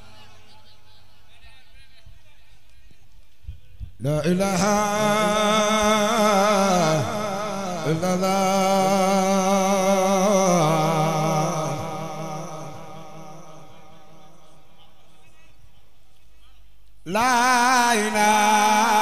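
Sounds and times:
man chanting into a microphone: 3.8 - 19.0.

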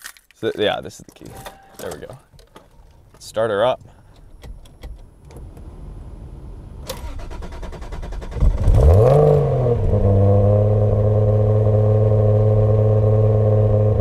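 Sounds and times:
car engine revving and idling: 5.4 - 14.0.

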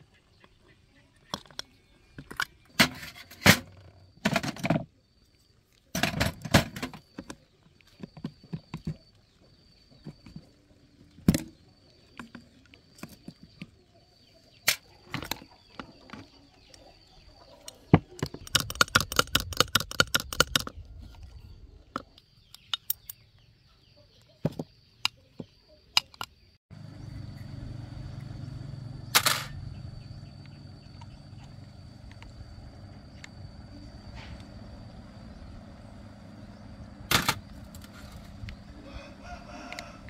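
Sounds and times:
faint high whine: 26.7 - 40.0
steady low hum: 26.7 - 40.0.

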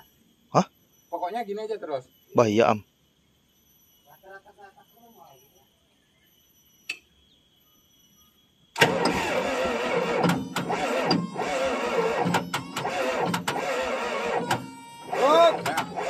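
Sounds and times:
diesel engine cranking and turning over: 8.8 - 16.0
engine sharp knocks: 8.8 - 16.0.

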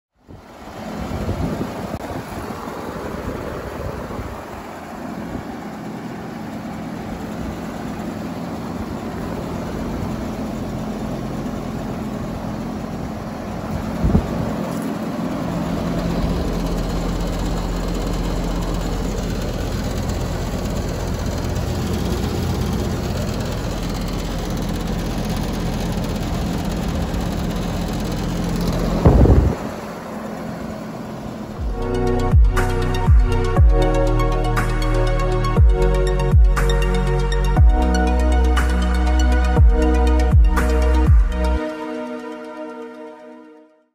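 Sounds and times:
heat pump humming: 0.4 - 34.0.

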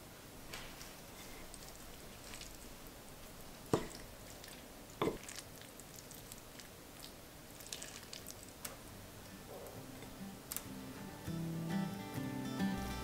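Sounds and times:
squishing of saucy food: 0.5 - 9.5.

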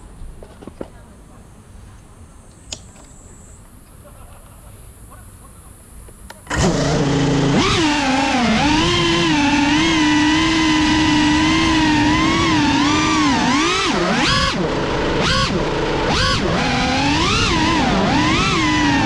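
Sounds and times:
drone motors whining: 6.4 - 19.0.

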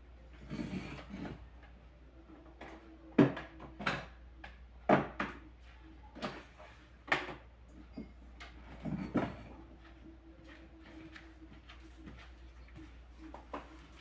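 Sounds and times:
faint steady hum: 0.0 - 14.0
objects knocking on cabinet: 3.1 - 4.2, 4.9 - 5.5.

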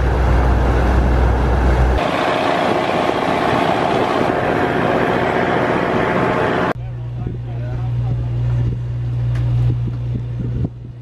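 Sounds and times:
boat engine running: 0.0 - 11.0
constant rushing noise: 0.0 - 11.0.

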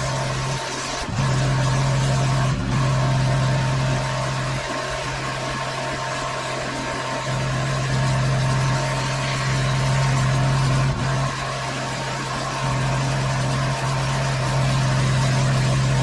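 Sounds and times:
pressure washer engine running: 0.0 - 16.0.

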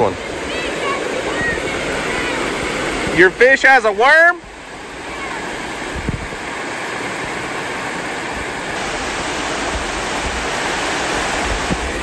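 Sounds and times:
water pouring over spillway: 8.8 - 12.0.

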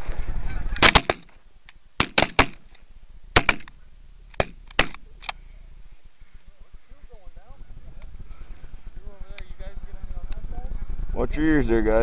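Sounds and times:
shotgun reloading clicks: 0.8 - 2.8, 3.4 - 5.4.

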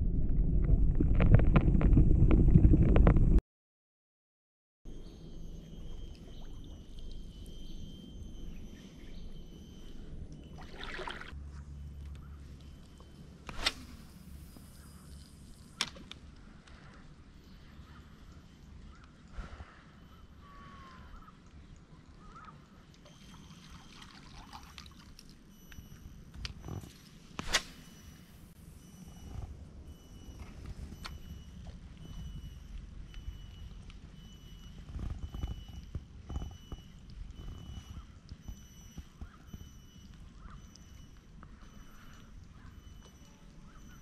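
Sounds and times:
low rumble: 0.0 - 3.4
water dripping and trickling: 5.7 - 8.3, 9.2 - 11.4, 21.2 - 26.6
light water sounds: 10.0 - 11.6, 12.5 - 28.2.

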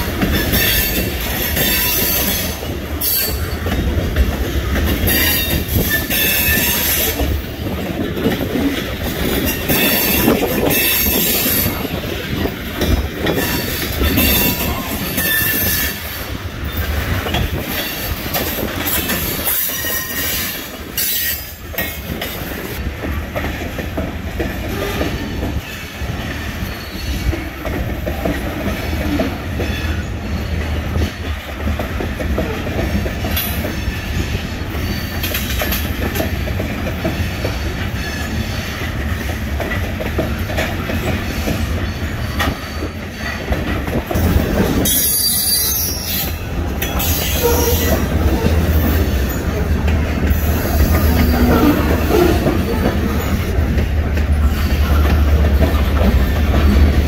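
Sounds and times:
freight train rolling rumble: 0.0 - 57.0
train wheels squealing: 0.2 - 3.7, 5.0 - 7.4, 9.0 - 11.9, 12.9 - 21.6, 24.8 - 27.6, 28.7 - 31.1, 32.9 - 35.8, 37.0 - 39.2, 41.0 - 43.6, 44.2 - 49.6, 50.2 - 53.6.

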